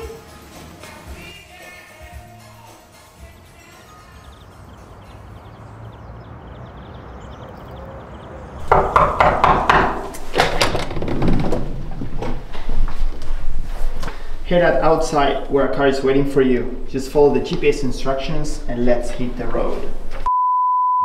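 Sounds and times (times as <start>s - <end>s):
knocks and thuds: 8.6s - 12.8s.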